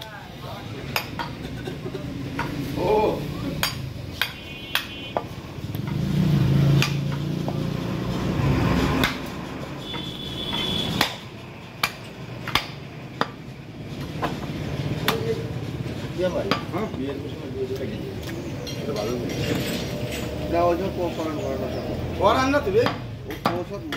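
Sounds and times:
cleaver chopping on wooden block: 6.7 - 7.6, 9.0 - 13.4.

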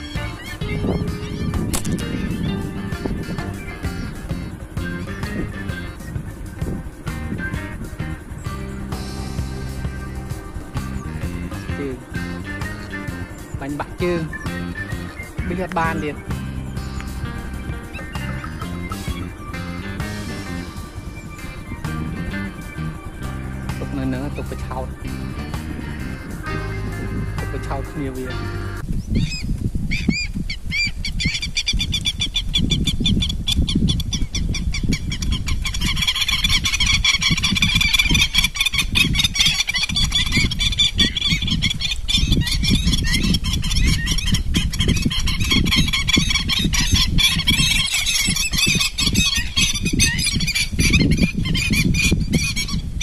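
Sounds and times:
flock of waterfowl calling: 0.0 - 9.1, 24.2 - 52.8
low rumble: 0.0 - 28.8.

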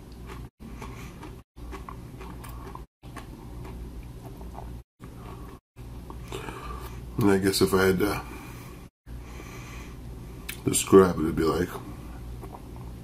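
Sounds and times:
low room hum: 0.0 - 13.0
faint chewing of chip: 0.1 - 5.6.

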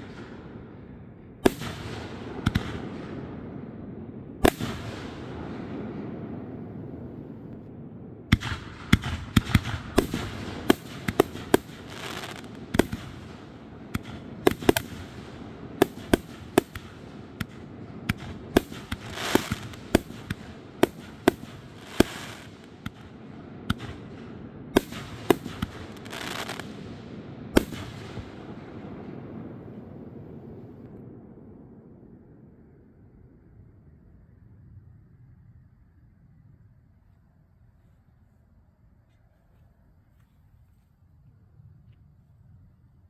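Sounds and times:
fireworks bangs: 0.0 - 31.0
fireworks hissing: 10.7 - 13.0, 18.6 - 22.7, 25.1 - 26.6.

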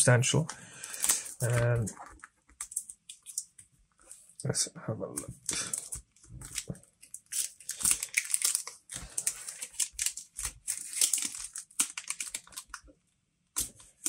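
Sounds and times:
plastic bag crinkling: 5.6 - 12.8.

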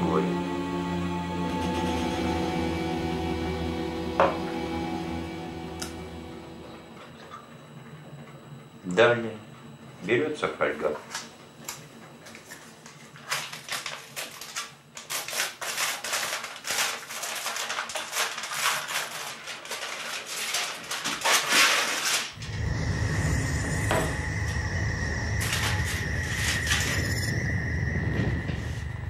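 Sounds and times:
high steady tone: 0.0 - 10.6, 22.4 - 29.0
steady low hum: 0.0 - 15.0, 22.3 - 29.0
aluminium foil crinkling: 12.3 - 22.4.

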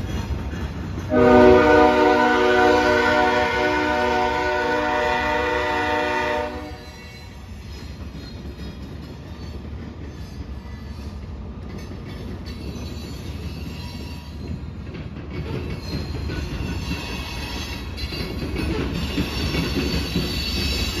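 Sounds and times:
freight train cars rumbling past: 0.0 - 21.0
diesel train horn: 1.1 - 7.0
wheel squeal: 15.4 - 21.0.

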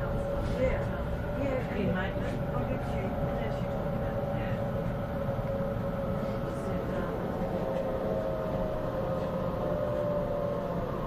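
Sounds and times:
higher whine: 0.0 - 11.0
train rumble: 0.0 - 11.0
train motor whine: 5.0 - 11.0.

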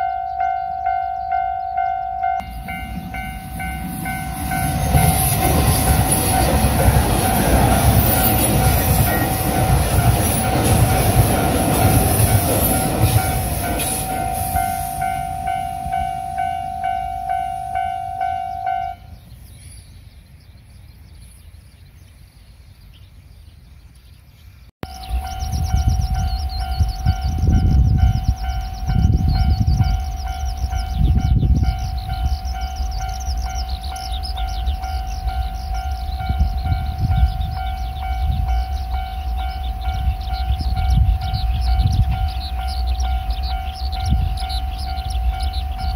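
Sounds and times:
level crossing bell ringing: 0.0 - 19.1
electric train rushing past: 0.0 - 19.6, 24.8 - 45.9.

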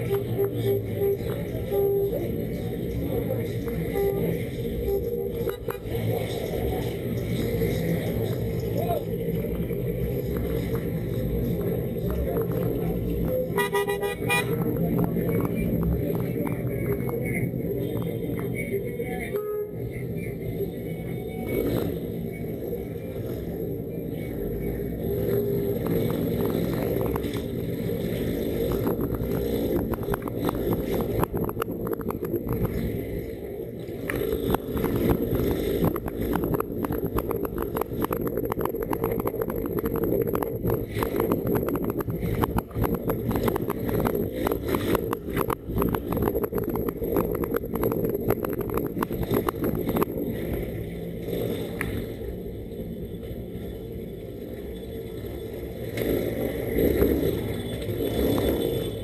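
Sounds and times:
rapid crackling: 21.5 - 52.2
motorcycle engine at low speed: 21.6 - 52.7
wind noise on microphone: 24.9 - 53.0.

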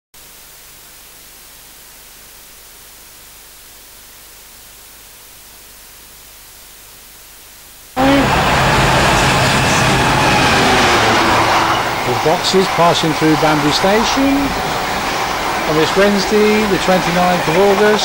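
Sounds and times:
analogue recording hiss: 0.2 - 8.2, 12.0 - 18.0.

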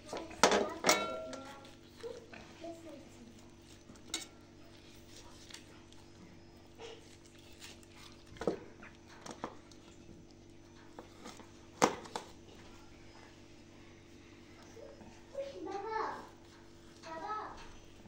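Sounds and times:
knife clinking on metal tray: 0.5 - 1.5, 4.0 - 4.4
raw chicken pulled apart by hand: 6.9 - 8.6.

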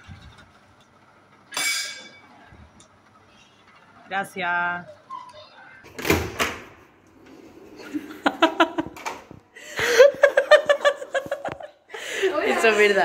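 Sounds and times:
women laughing: 7.8 - 9.0, 9.6 - 13.0.

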